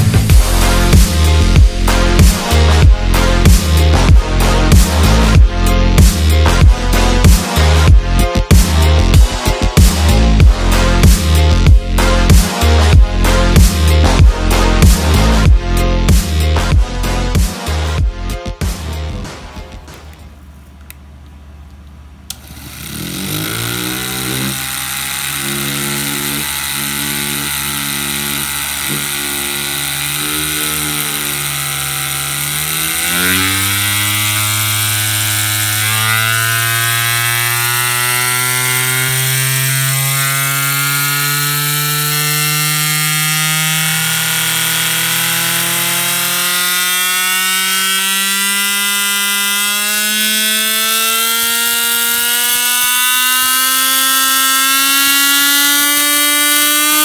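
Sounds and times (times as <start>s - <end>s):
rotary tool whining: 22.3s - 57.0s.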